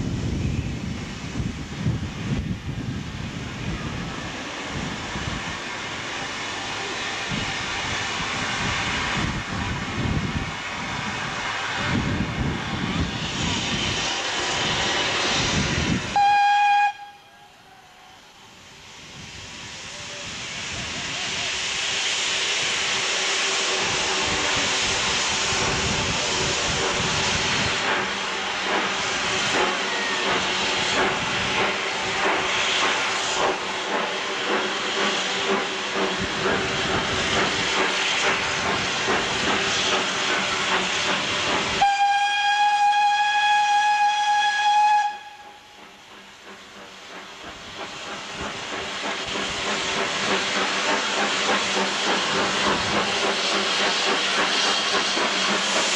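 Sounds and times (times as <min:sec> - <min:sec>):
steam locomotive hissing: 0:00.0 - 0:55.9
steam whistle blast: 0:16.1 - 0:18.3, 0:41.8 - 0:45.8.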